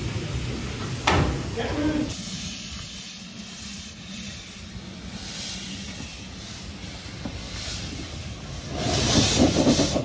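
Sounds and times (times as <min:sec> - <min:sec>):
steam hissing: 0:00.0 - 0:10.0.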